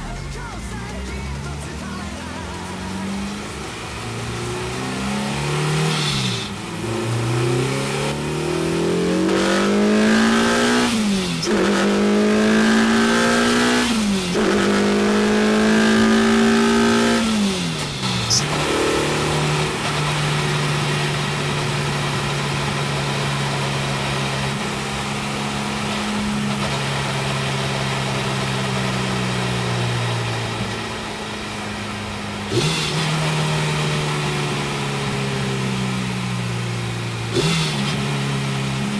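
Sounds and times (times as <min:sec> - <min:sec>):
car engine accelerating through gears: 0:00.0 - 0:38.9.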